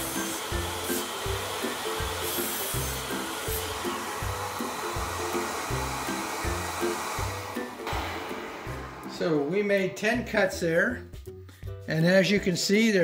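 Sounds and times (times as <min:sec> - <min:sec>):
miter saw cutting boards: 0:00.0 - 0:10.0
dust collector rushing: 0:00.0 - 0:10.8.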